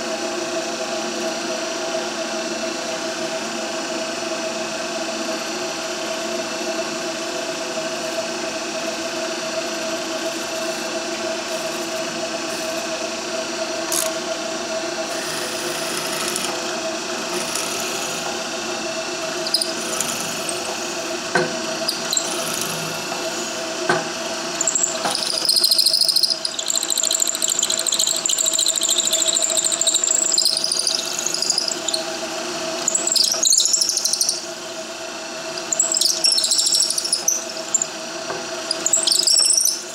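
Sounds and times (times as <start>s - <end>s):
drill press humming: 7.9s - 39.9s
high-pitched drill bit squeal: 15.1s - 16.5s, 17.3s - 18.2s, 19.4s - 20.7s, 21.8s - 22.9s, 24.6s - 32.1s, 32.8s - 34.5s, 35.5s - 37.9s, 38.7s - 39.9s.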